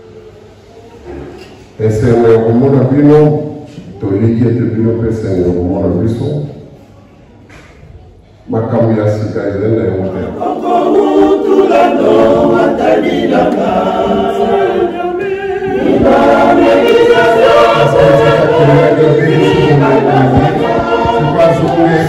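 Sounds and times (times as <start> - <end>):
choir singing a hymn: 1.8 - 3.3, 10.1 - 22.0.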